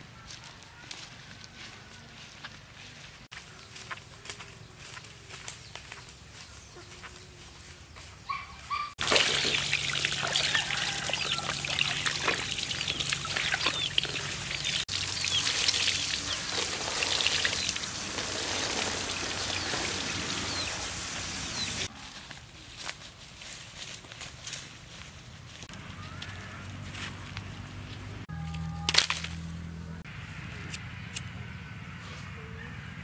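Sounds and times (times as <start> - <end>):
birds chirping: 0.0 - 21.9
water splashing and trickling: 9.0 - 21.9.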